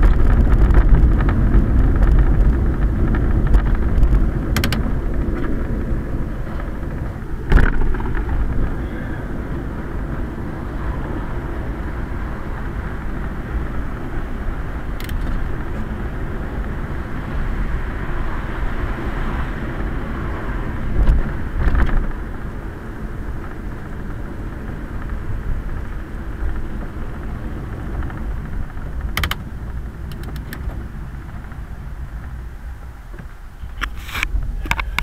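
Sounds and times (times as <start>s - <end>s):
tyres rolling on wet street: 0.0s - 33.8s
short thumps: 6.6s - 8.5s.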